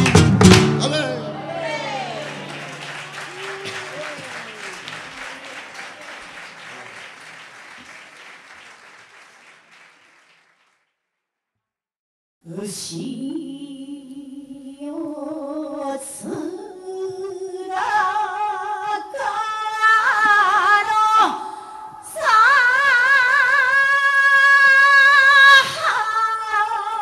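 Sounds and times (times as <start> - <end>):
applause: 0.0 - 0.6, 1.5 - 11.0.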